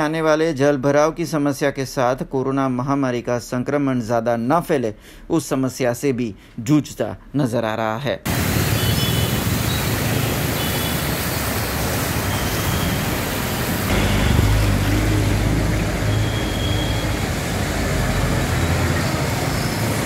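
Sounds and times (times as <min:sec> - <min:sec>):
steady hiss of wet road: 0:08.3 - 0:20.0
vehicle engines: 0:08.3 - 0:20.0
bus engine low hum: 0:13.8 - 0:20.0.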